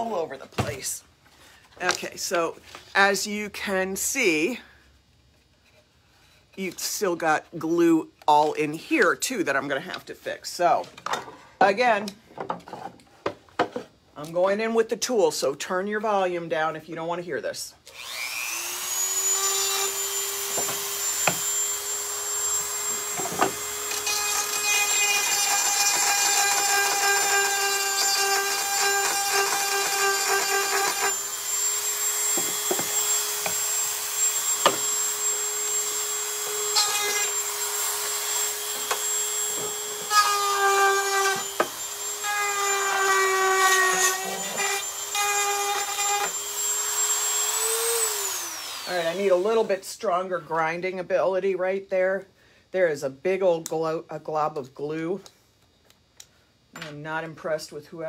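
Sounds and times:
rotary tool grinding: 18.0 - 49.2.

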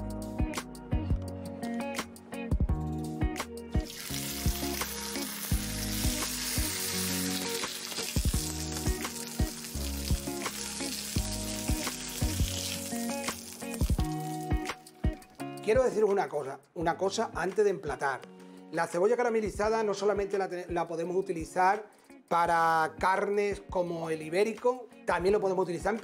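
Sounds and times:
background music with steady beat: 0.0 - 26.0
meat sizzling in a frying pan: 3.8 - 15.1.

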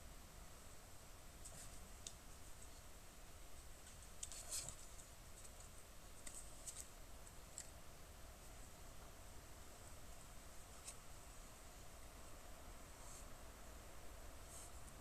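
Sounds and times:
small clicks and crackles: 1.4 - 2.9, 3.8 - 7.8.

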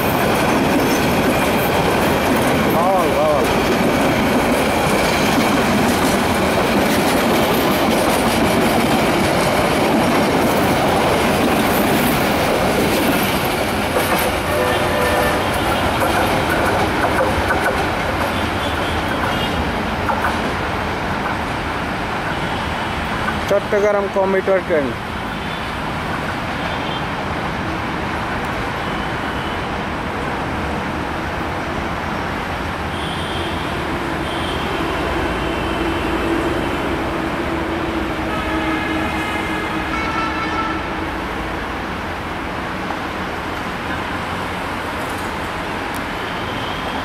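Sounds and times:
city traffic rumble: 0.0 - 47.0
train running on tracks: 0.0 - 47.0
long horn: 14.4 - 15.8, 38.2 - 41.1
short horn toots: 14.5 - 15.5.

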